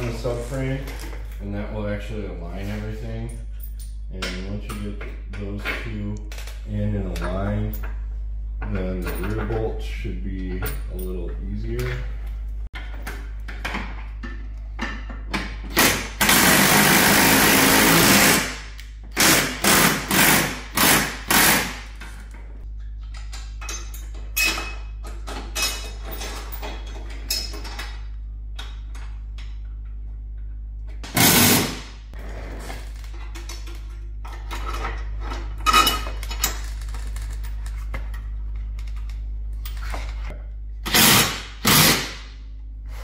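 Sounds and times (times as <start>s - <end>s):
impact wrench hammering: 14.8s - 22.0s.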